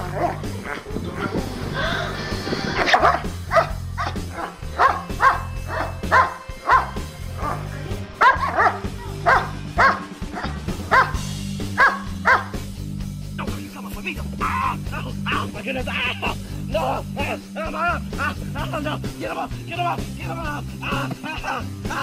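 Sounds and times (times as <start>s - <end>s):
background music with bass: 0.0s - 22.0s
dog barking: 2.9s - 11.2s, 11.8s - 12.6s.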